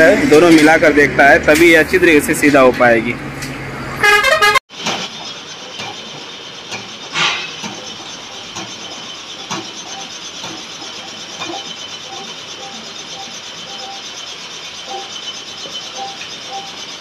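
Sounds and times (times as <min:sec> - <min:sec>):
metal clank: 0:06.7 - 0:10.6.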